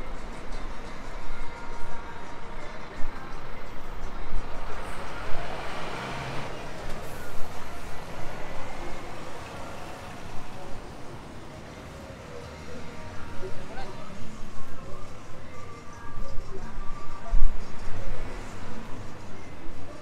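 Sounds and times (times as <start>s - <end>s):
low traffic rumble: 0.0s - 20.0s
bus pulling away: 4.2s - 13.8s.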